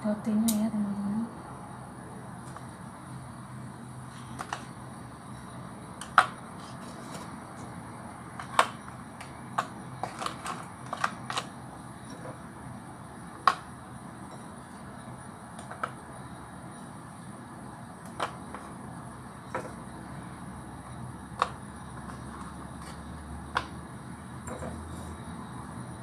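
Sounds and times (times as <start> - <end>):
low steady hum: 0.0 - 26.0
biscuits clicking on plastic: 6.0 - 7.4, 8.3 - 11.6, 13.4 - 13.8, 15.6 - 16.0, 18.0 - 18.8, 21.3 - 24.7.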